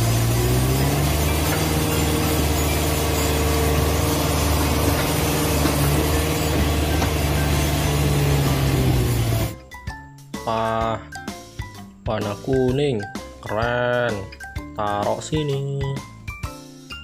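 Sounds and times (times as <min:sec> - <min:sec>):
diesel engine running: 0:00.0 - 0:09.6
excavator digging soil: 0:00.0 - 0:09.6.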